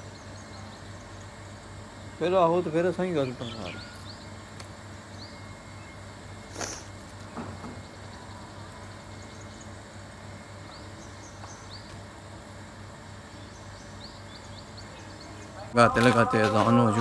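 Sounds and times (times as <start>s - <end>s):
steady low hum: 0.0s - 17.0s
high bird chirps: 3.2s - 4.4s.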